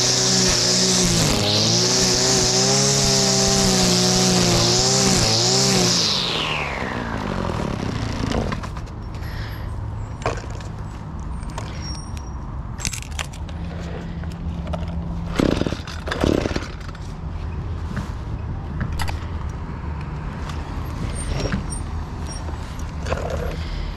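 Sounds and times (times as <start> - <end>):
recoil starter pull rasp: 0.0 - 8.8.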